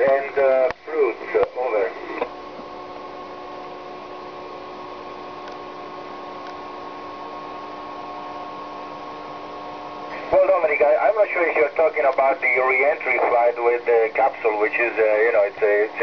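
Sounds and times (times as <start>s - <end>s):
radio receiver hiss: 0.0s - 2.4s, 10.0s - 16.0s.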